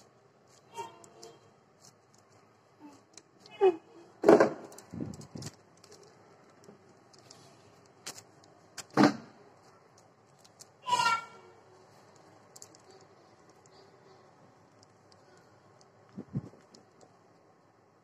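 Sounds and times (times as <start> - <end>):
plastic squeaks under fingers: 0.5 - 6.1
plastic bag crinkling: 4.4 - 10.8, 11.6 - 13.8.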